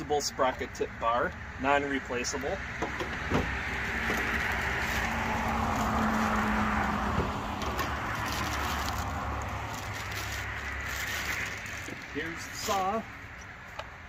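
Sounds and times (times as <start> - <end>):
motor vehicle passing: 2.6 - 13.7.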